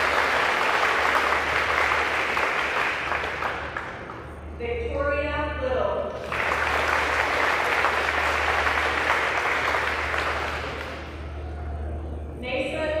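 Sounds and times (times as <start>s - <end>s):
audience applauding: 0.0s - 4.4s, 6.2s - 11.6s.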